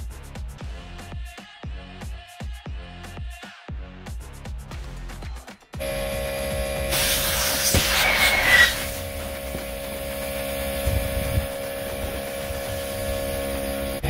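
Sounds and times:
air compressor motor hum: 0:05.8 - 0:14.0
air hissing from valve: 0:06.3 - 0:14.0.

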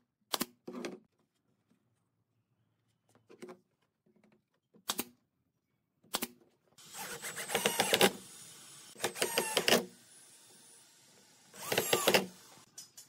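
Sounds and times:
cordless drill driving screws: 0:06.8 - 0:12.7.

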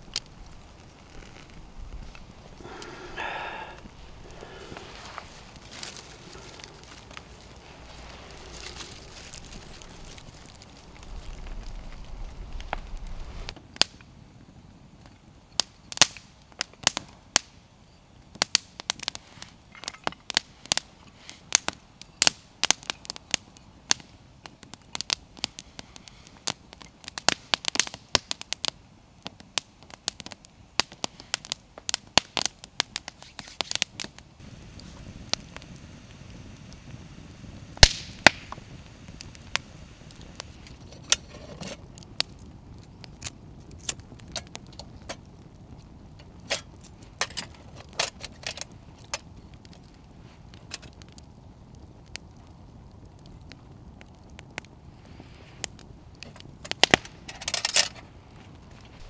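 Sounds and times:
low steady noise: 0:00.0 - 0:16.5
campfire crackling and popping: 0:00.0 - 0:59.0.

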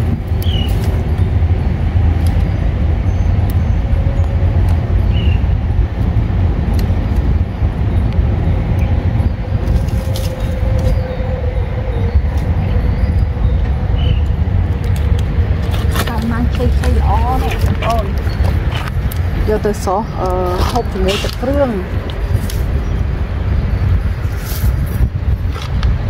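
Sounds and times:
vine shoots snapping and rustling: 0:00.0 - 0:01.2, 0:09.6 - 0:11.0, 0:14.8 - 0:22.8
wind rumbling on microphone: 0:00.0 - 0:26.0.

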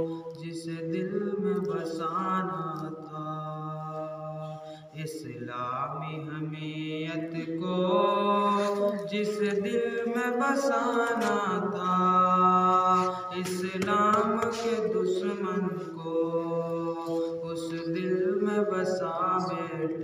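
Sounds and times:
man singing: 0:00.0 - 0:20.0.

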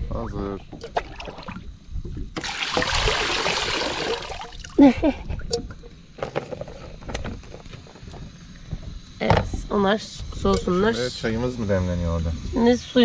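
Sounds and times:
water pouring and splashing: 0:00.8 - 0:04.8.

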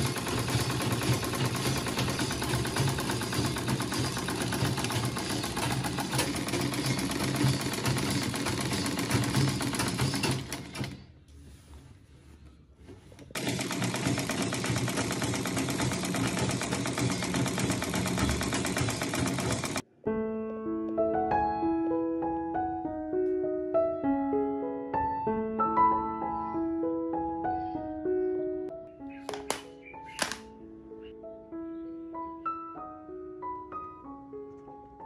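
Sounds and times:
sewing machine stitching: 0:00.0 - 0:11.1, 0:13.2 - 0:19.8.

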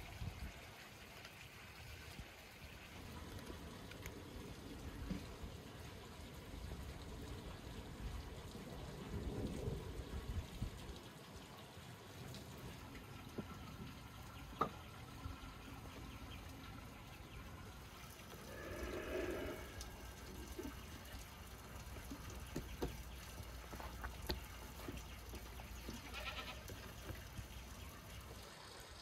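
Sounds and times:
air blown through tube: 0:18.3 - 0:20.7
sheep or goat bleating: 0:26.0 - 0:26.7.

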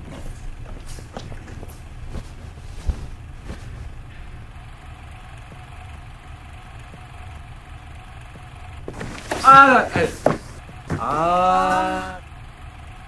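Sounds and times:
steady low rumble: 0:00.0 - 0:11.1
sharp knocks: 0:08.9 - 0:11.3.

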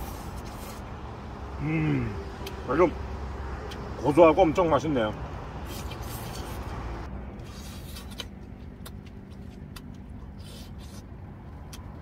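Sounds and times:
quiet chewing: 0:07.4 - 0:12.0.

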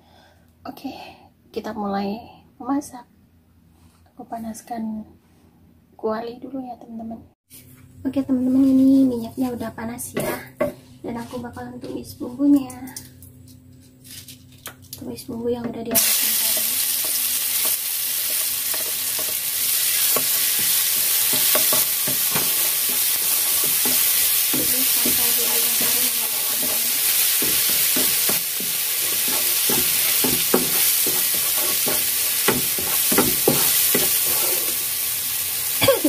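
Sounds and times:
spatula scraping and tapping pan: 0:10.1 - 0:12.1, 0:15.9 - 0:34.8
paste sizzling in hot oil: 0:16.0 - 0:36.0.

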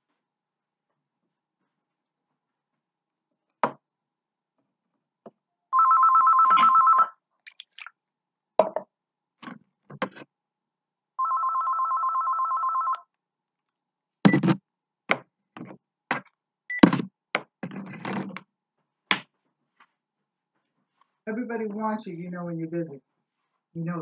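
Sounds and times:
electronic telephone ringing: 0:05.7 - 0:07.2, 0:11.2 - 0:13.0.

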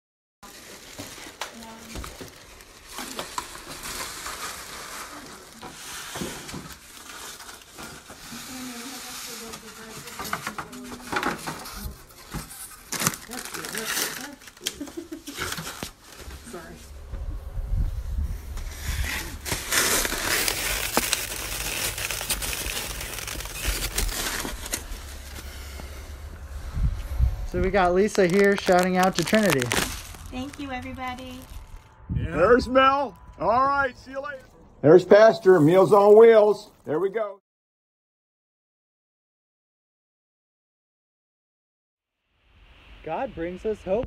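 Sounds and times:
foam containers being handled: 0:00.4 - 0:16.7, 0:18.6 - 0:26.2, 0:28.0 - 0:30.5
plastic wrap crinkling: 0:00.4 - 0:16.7, 0:18.8 - 0:26.3, 0:27.6 - 0:31.9.

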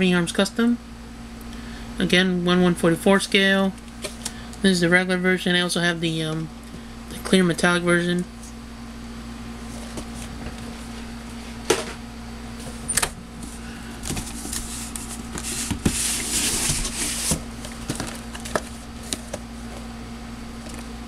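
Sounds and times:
cardboard sliding on cardboard: 0:14.1 - 0:17.4.

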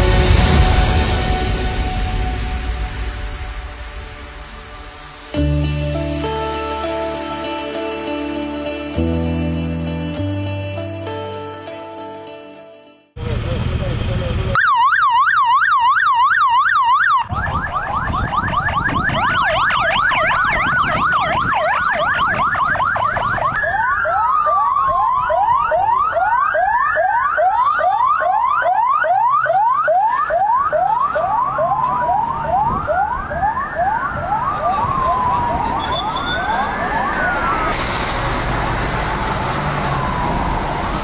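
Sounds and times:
low rumble of vehicles: 0:13.2 - 0:14.6, 0:17.3 - 0:41.0
police sirens: 0:14.5 - 0:41.0.

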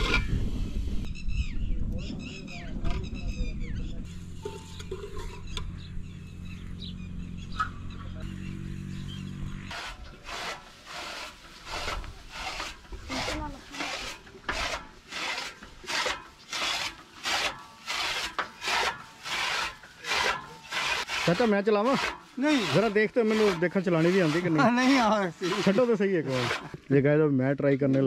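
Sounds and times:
chaff cutter blades rasping swish: 0:09.7 - 0:26.8.

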